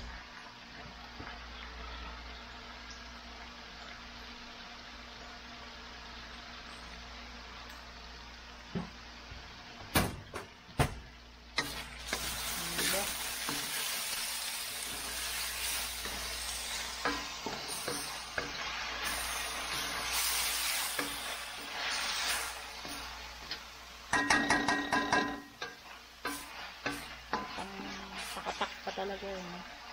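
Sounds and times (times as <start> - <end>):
vegetables sizzling: 0.0 - 29.9
spatula scraping wok: 11.6 - 29.8
spatula knocking against wok: 24.1 - 27.6.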